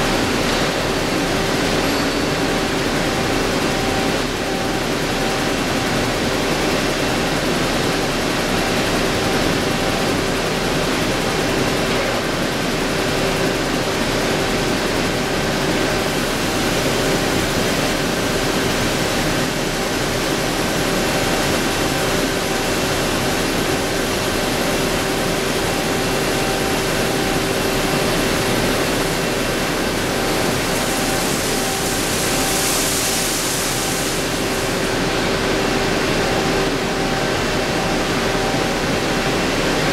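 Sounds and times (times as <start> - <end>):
lathe machining whine: 0.0 - 39.9.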